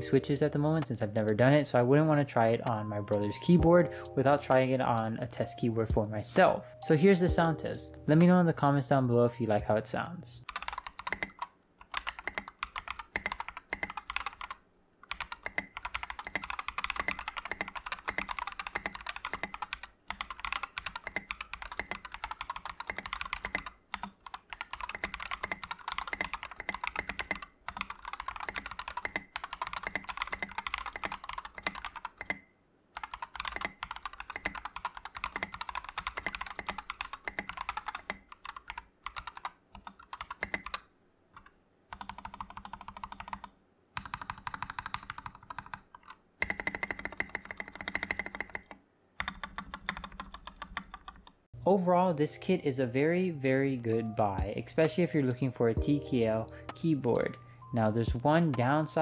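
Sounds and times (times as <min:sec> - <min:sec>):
mechanical keyboard typing: 0:10.4 - 0:32.4, 0:33.0 - 0:51.4.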